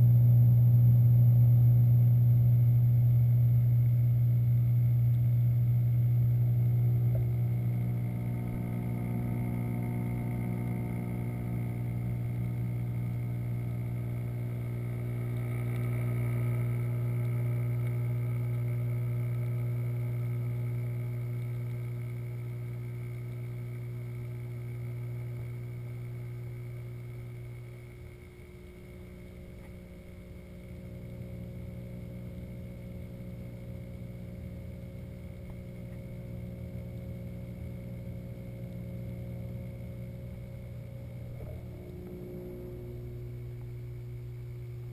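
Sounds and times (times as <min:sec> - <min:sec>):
water pumps humming underwater: 0:00.0 - 0:44.9.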